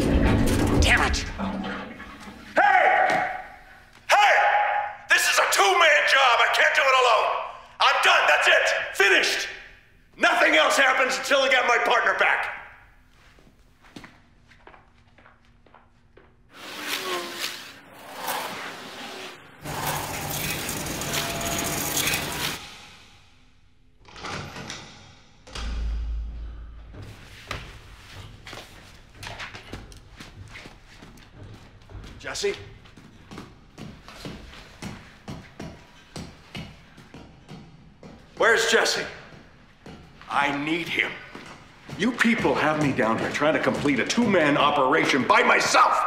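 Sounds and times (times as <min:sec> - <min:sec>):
footsteps on metal stairs: 0:25.5 - 0:44.8.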